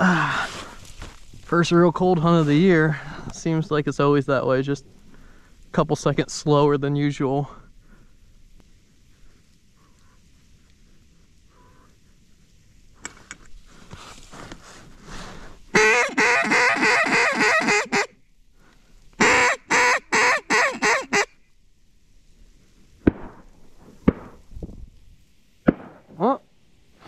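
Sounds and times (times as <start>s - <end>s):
duck call quacks: 15.7s - 18.2s, 19.2s - 21.3s
sharp knocks: 24.0s - 24.4s.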